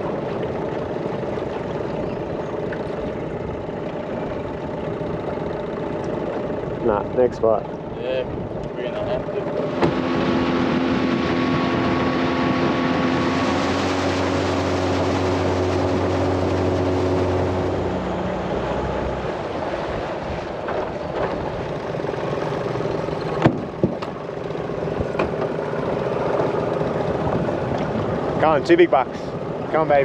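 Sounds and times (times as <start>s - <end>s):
outboard motor running: 0.0s - 30.0s
wind and water rushing: 0.0s - 30.0s
sharp knocks: 23.4s - 24.2s.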